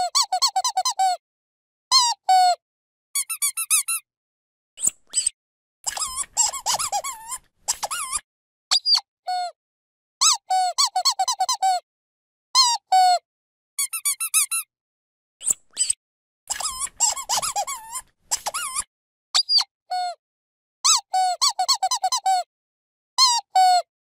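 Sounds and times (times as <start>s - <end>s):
squeaky toy squeaking: 0.0s - 1.2s, 1.9s - 2.6s, 3.2s - 4.0s, 4.8s - 9.5s, 10.2s - 11.8s, 12.6s - 13.2s, 13.8s - 14.7s, 15.4s - 20.2s, 20.8s - 22.5s, 23.2s - 23.9s.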